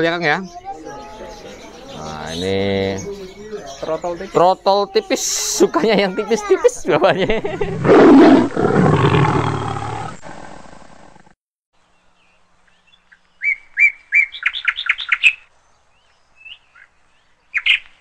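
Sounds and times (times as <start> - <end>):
loud roar: 7.6 - 11.1.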